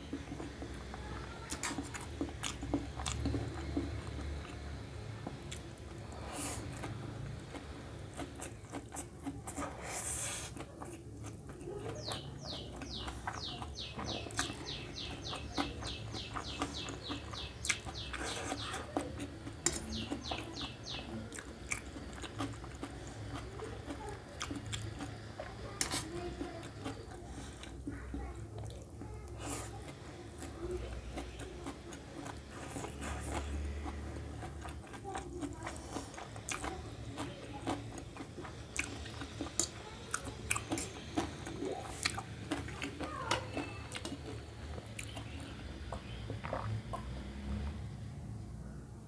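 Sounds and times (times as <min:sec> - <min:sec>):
chewing and slurping noodles: 0:00.0 - 0:47.8.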